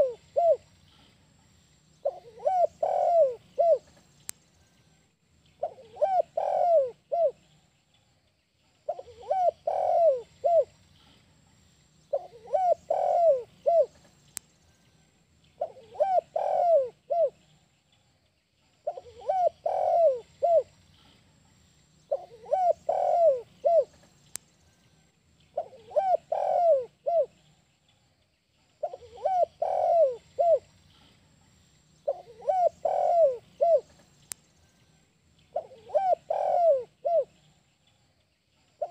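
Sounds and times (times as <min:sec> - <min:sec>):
dove cooing: 0:00.0 - 0:00.7, 0:02.0 - 0:04.0, 0:05.6 - 0:07.4, 0:08.9 - 0:10.8, 0:12.1 - 0:14.1, 0:15.6 - 0:17.4, 0:18.8 - 0:20.8, 0:22.1 - 0:24.0, 0:25.6 - 0:27.4, 0:28.8 - 0:31.0, 0:32.0 - 0:34.0, 0:35.5 - 0:37.5.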